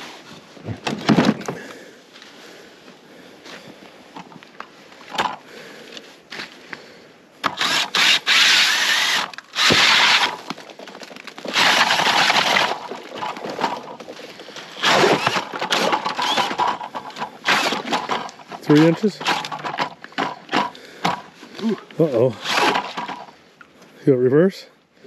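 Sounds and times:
drill auger grinding through ice: 7.4 - 10.6, 11.3 - 23.4.

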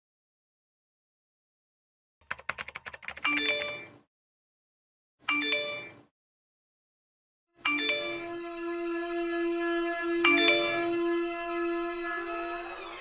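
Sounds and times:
laptop keyboard typing: 2.2 - 3.9
bright electronic chime: 7.6 - 9.0.

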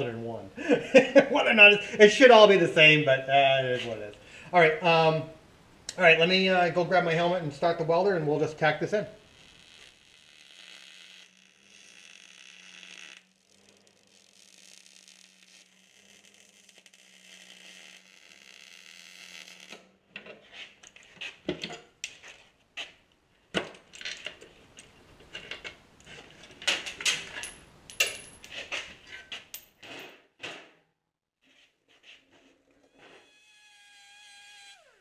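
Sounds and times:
welding arc crackling and hissing: 9.1 - 19.7.

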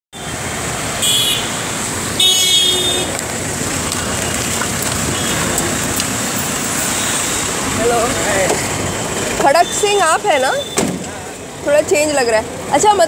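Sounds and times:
traffic on wet road: 0.1 - 13.0
vehicle horn honking: 1.0 - 1.6, 2.2 - 3.1.

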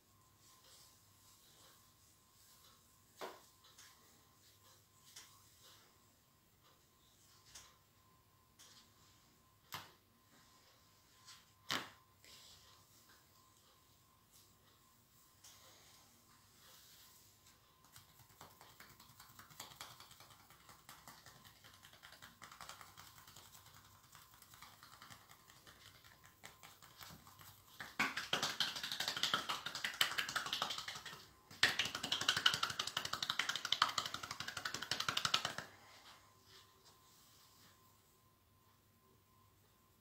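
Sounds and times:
hands slapping bare skin: 17.8 - 35.7.

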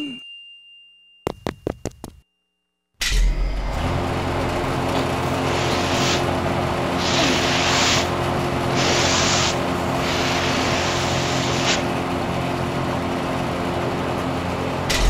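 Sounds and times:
rushing hiss: 5.4 - 6.3, 7.0 - 8.1, 8.7 - 11.9.

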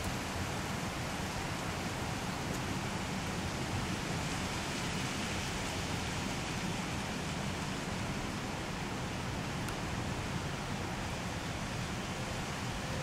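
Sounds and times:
steady wind: 0.0 - 13.0.

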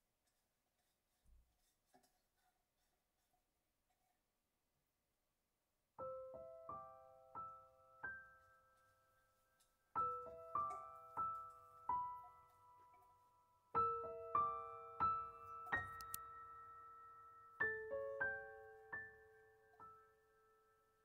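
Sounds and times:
soft solo piano music: 6.0 - 21.0.

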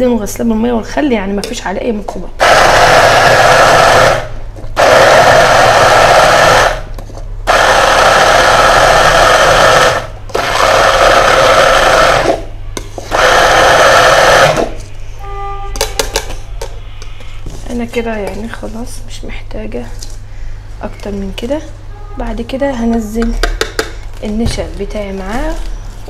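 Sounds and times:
immersion blender running: 2.4 - 6.9, 7.5 - 12.5, 13.1 - 14.8.

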